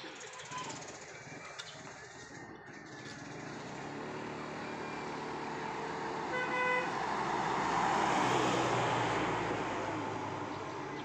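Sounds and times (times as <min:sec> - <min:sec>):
road vehicle approaching: 0:00.0 - 0:11.0
vehicle horn toot: 0:06.2 - 0:07.0.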